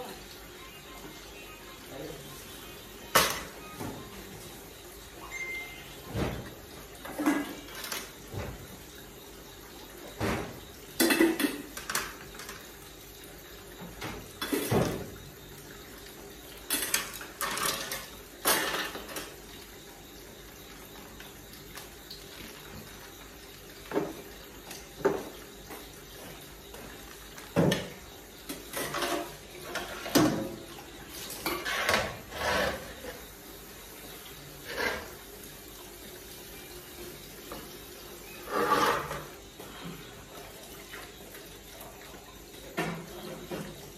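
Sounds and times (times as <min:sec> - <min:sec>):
tap water running: 0:00.0 - 0:43.9
dishes clattering in steel sink: 0:07.0 - 0:08.6, 0:10.2 - 0:12.6, 0:14.0 - 0:15.2, 0:16.7 - 0:19.3, 0:27.6 - 0:33.0.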